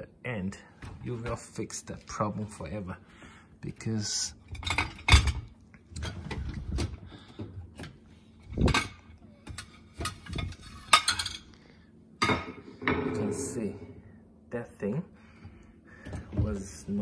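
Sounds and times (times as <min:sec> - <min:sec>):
mugs and plates clinking: 0:04.5 - 0:06.2, 0:08.4 - 0:11.5, 0:12.2 - 0:13.6.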